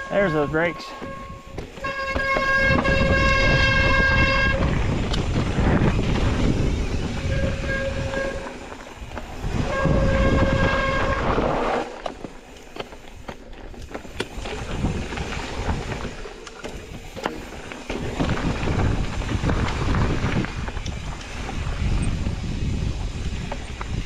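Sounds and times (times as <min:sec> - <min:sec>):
low rumble of riding: 0:00.0 - 0:24.0
bike disc brakes squealing: 0:00.1 - 0:12.0.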